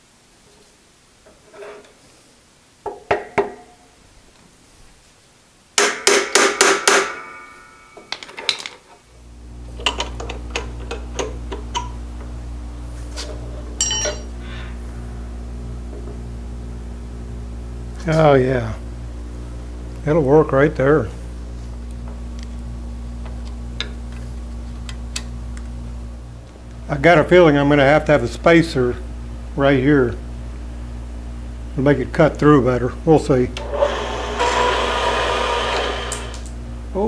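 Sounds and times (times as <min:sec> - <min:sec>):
ringing metal knocks: 0:13.8 - 0:14.3
bandsaw motor humming: 0:33.6 - 0:36.6.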